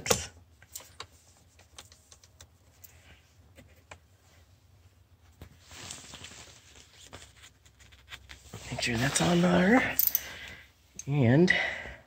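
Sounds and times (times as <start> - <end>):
scraping rustle: 5.6 - 9.9.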